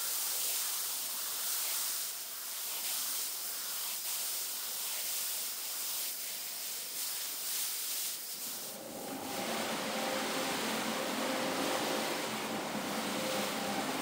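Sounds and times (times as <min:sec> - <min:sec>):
rotary scrubbing machine hum: 0:08.4 - 0:14.0.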